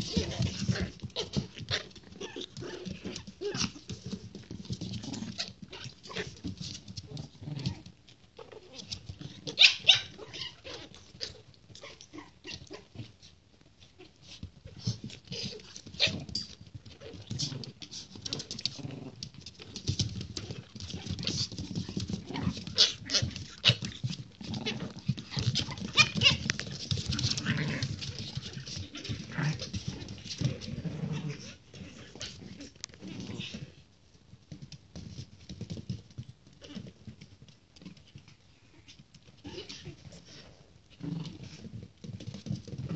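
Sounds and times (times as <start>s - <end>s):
puppy growls and whimpers: 0.0s - 4.0s, 7.0s - 13.2s, 20.4s - 33.8s, 38.7s - 41.7s
puppies scuffling: 0.0s - 42.9s.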